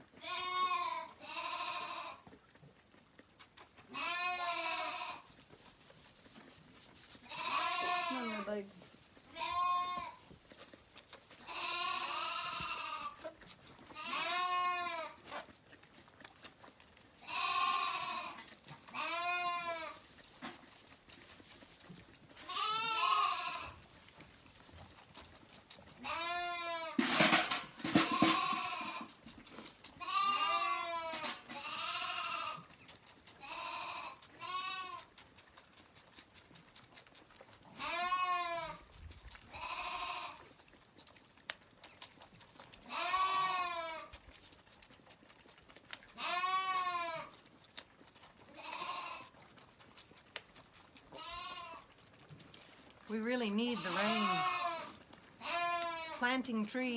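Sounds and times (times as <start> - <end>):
lambs bleating: 0.2 - 2.3, 3.9 - 5.4, 7.2 - 8.7, 9.3 - 10.3, 11.4 - 15.3, 17.2 - 20.0, 22.4 - 23.8, 25.8 - 32.8, 33.4 - 35.1, 37.7 - 40.6, 42.8 - 44.1, 46.1 - 47.4, 48.5 - 49.4, 51.0 - 51.9, 53.5 - 56.4.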